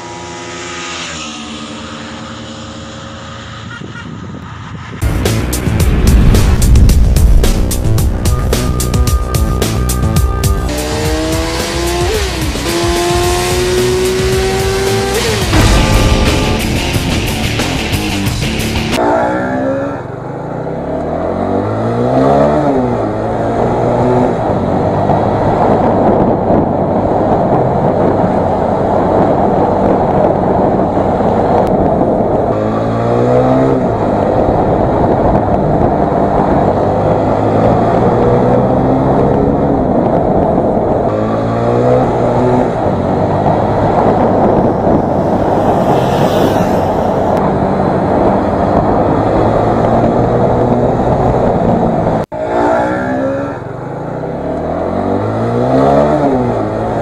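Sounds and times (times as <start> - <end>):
wind rush on microphone: 3.2 - 8.7, 22.6 - 52.3
motorcycle engine accelerating: 5.0 - 26.4, 29.0 - 52.2.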